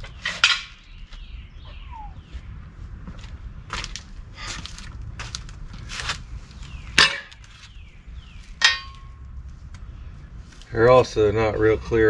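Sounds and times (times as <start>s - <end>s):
bird chirps: 0.0s - 2.7s, 6.4s - 9.1s.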